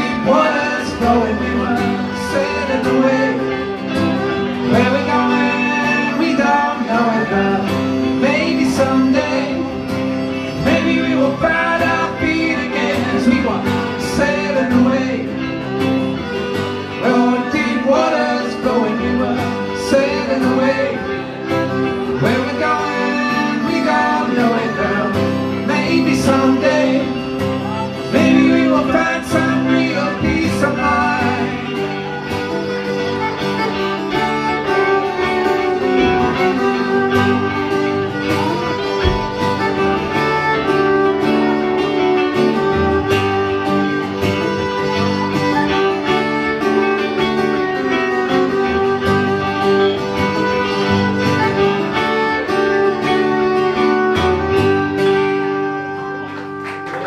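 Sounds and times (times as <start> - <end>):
fiddle: 0.0 - 57.0
picked banjo: 0.0 - 57.0
strummed acoustic guitar: 0.0 - 57.0.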